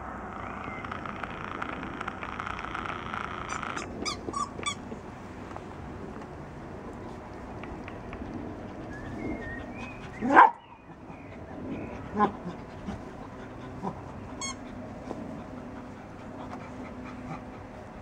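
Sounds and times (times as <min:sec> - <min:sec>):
dog whining: 0:09.4 - 0:17.6.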